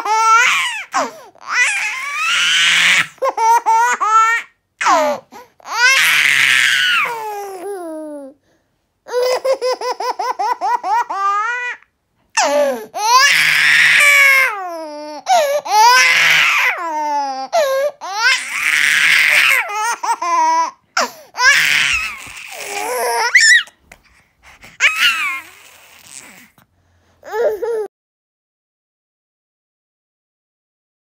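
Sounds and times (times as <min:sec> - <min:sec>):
infant laughing: 0:00.0 - 0:08.4, 0:09.1 - 0:11.8, 0:12.4 - 0:23.8, 0:24.8 - 0:26.4.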